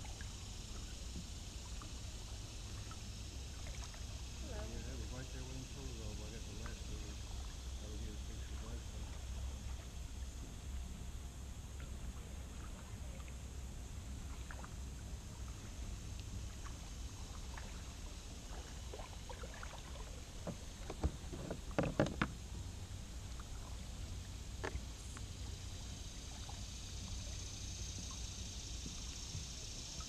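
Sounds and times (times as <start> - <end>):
low rumble of kayak paddling: 0.0 - 30.0
paddle and hull clicks: 18.5 - 25.5
paddle knocking on hull: 20.4 - 22.4.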